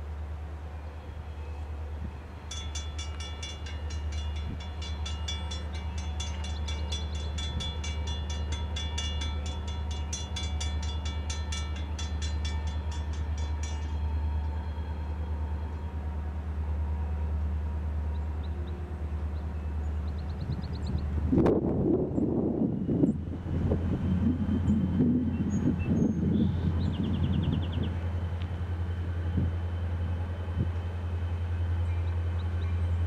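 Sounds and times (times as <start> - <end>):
railroad crossing bell ringing: 0.9 - 16.3
steady low rumble: 20.0 - 33.0.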